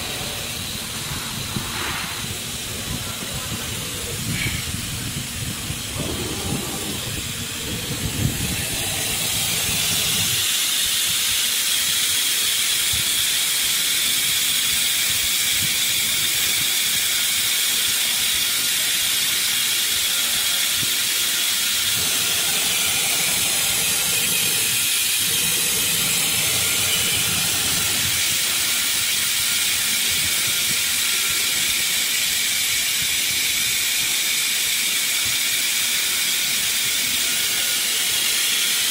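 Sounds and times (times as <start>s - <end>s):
router spindle whining: 2.4s - 10.8s, 21.8s - 29.2s.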